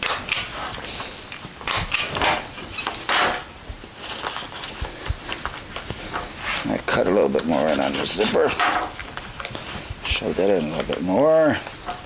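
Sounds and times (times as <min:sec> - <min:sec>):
tarp crinkling and rustling: 0:03.8 - 0:12.0.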